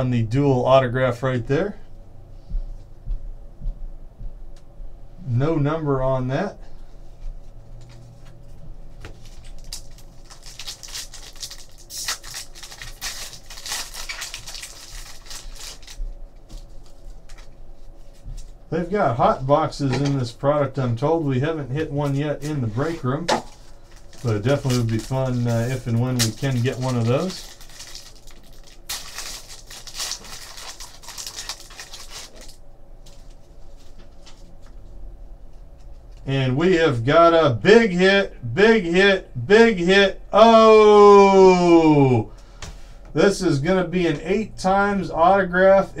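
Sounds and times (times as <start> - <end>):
foil wrapper tearing and crinkling: 9.2 - 16.0, 23.4 - 32.6.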